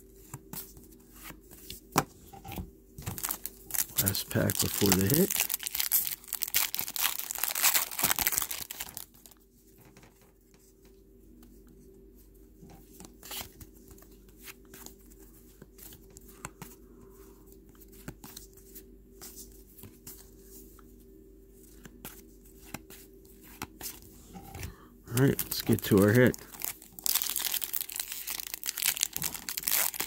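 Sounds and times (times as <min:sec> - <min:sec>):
plastic wrapper tearing and crinkling: 0:03.0 - 0:09.4, 0:25.1 - 0:30.0.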